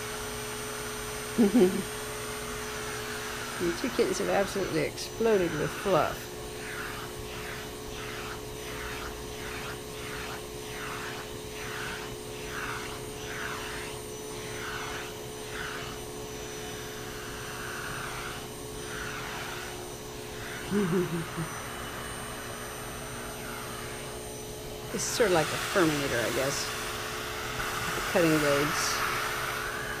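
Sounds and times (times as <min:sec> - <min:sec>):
vacuum cleaner suction: 0:00.0 - 0:30.0
wavering voice sound: 0:01.4 - 0:01.8, 0:20.6 - 0:21.6.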